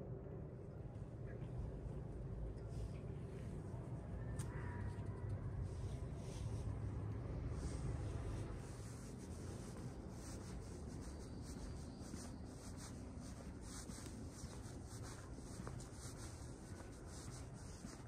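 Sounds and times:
outdoor background rumble: 0.0s - 17.8s
footsteps scuffing on pavement: 7.8s - 18.0s.

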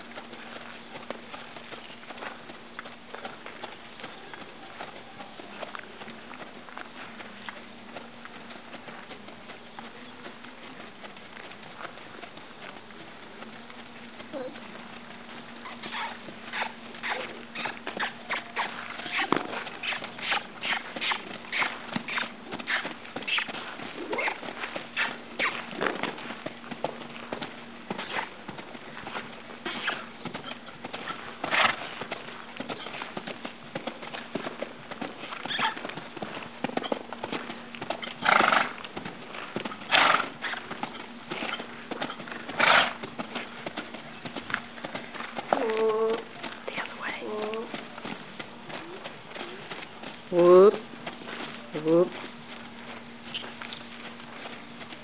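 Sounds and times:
faint steady hum: 0.0s - 55.0s
hoofbeats on sand: 0.0s - 55.0s
horse snorting: 15.6s - 26.0s, 27.9s - 28.4s, 29.6s - 32.2s, 37.9s - 38.9s, 39.5s - 47.5s.

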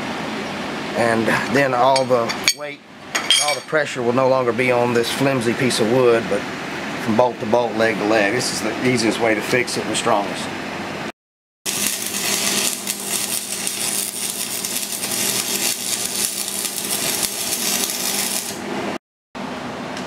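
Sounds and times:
welding arc crackling: 11.7s - 18.7s
steady hum: 11.7s - 20.0s.

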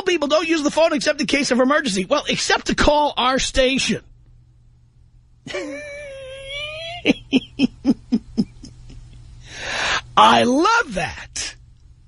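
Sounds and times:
man laughing: 5.5s - 9.2s.

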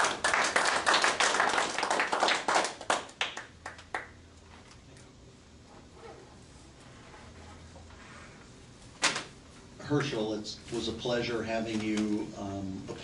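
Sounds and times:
audience applauding: 0.0s - 4.1s.

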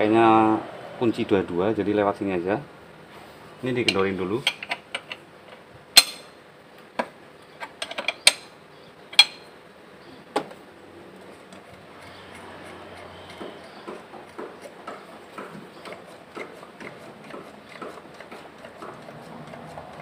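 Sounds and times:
spanner clinking on metal: 6.0s - 6.3s, 9.1s - 9.5s.

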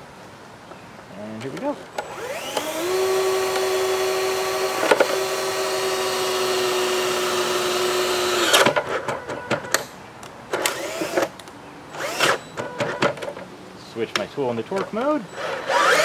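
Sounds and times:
cordless drill whining: 2.0s - 8.8s, 10.6s - 11.3s, 12.0s - 12.4s, 15.4s - 16.0s.

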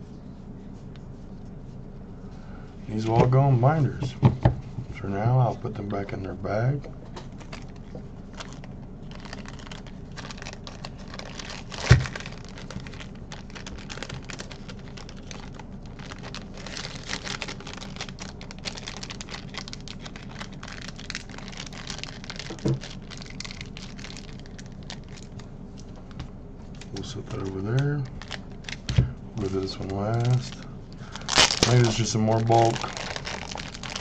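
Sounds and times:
plastic bag crinkling: 7.2s - 34.0s.

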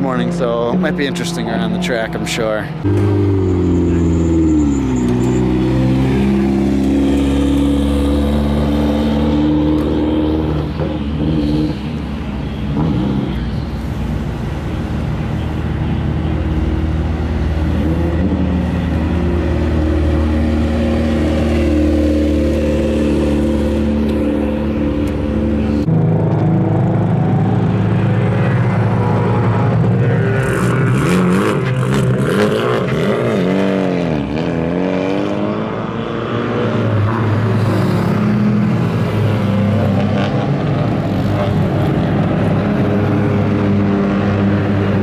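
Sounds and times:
race car engines at low revs: 0.0s - 45.0s.

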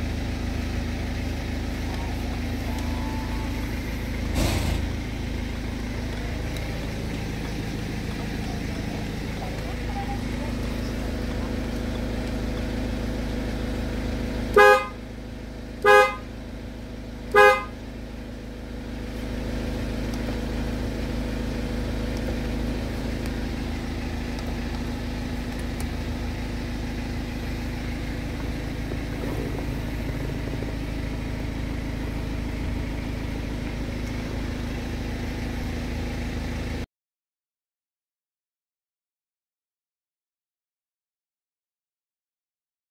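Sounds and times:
car engine idling: 0.0s - 36.8s
car horn honks: 2.4s - 5.1s, 14.5s - 15.0s, 15.8s - 16.4s, 17.3s - 17.8s.

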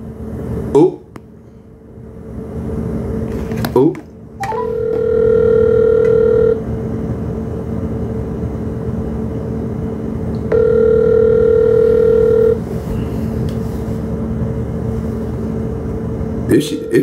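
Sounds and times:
phone ringback tone: 4.4s - 6.6s, 10.5s - 12.6s
low hum: 10.0s - 17.0s.

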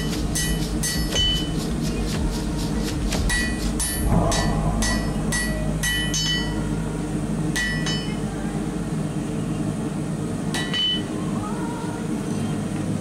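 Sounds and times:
steady low hum: 0.0s - 13.0s
hammer striking steel on anvil: 3.3s - 8.2s, 10.6s - 11.1s.

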